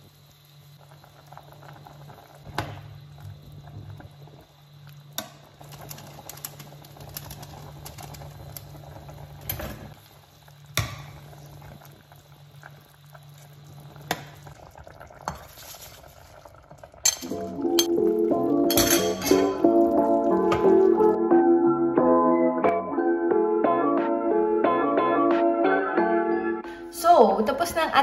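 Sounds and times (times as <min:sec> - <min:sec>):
broth bubbling in a pot: 0:00.0 - 0:21.2.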